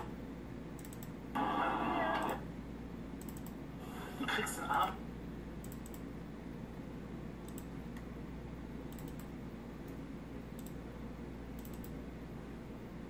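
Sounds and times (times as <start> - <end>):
steady low hum: 0.0 - 13.0
computer mouse clicking: 0.8 - 1.2, 3.2 - 3.6, 5.6 - 6.1, 7.4 - 8.1, 8.9 - 10.8, 11.5 - 12.0.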